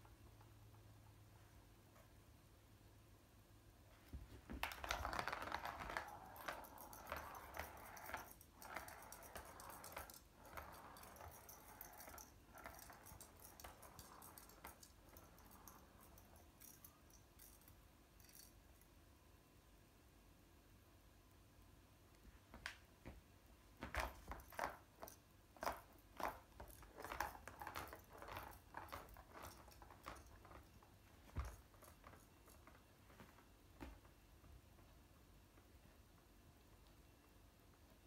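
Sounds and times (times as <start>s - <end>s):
ball rattling around plastic track: 4.5s - 17.6s, 23.8s - 32.8s.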